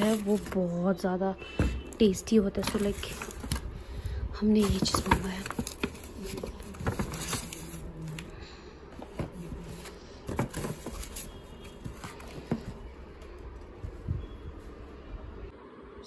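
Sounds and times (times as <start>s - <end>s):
paper bag rustling: 0.0s - 0.8s, 2.5s - 3.7s, 4.5s - 8.3s, 9.4s - 12.8s.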